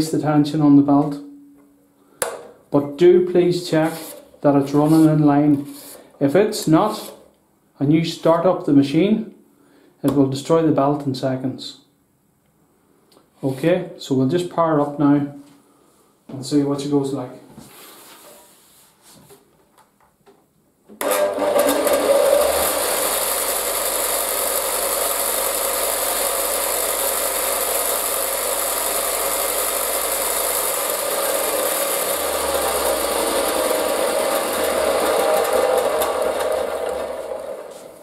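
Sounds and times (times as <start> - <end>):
bench grinder running: 21.0 - 38.0
grinder winding down: 21.0 - 38.0.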